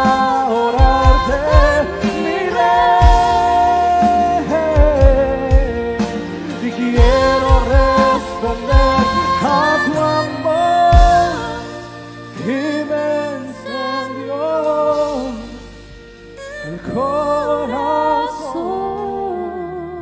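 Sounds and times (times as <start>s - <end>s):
keyboard: 0.0s - 20.0s
person singing worship song: 0.0s - 20.0s
violin: 0.0s - 20.0s.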